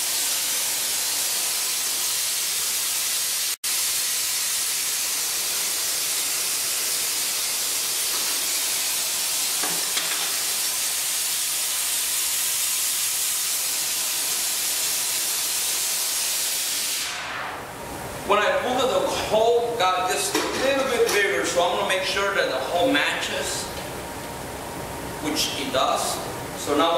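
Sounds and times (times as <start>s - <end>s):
torch flames hissing: 0.0s - 18.3s.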